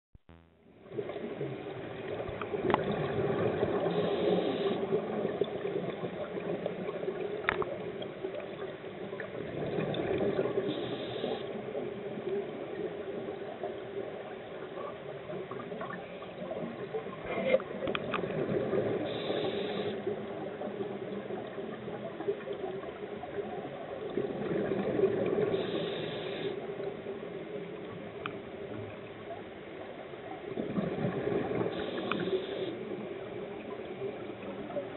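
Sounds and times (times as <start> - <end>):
exhaled bubbles rushing: 0.9 - 4.0, 9.3 - 10.7, 15.5 - 19.2, 24.0 - 25.6, 30.6 - 32.0
regulator breath hiss: 3.9 - 4.8, 10.7 - 11.5, 19.1 - 20.0, 25.6 - 26.6, 31.8 - 32.8.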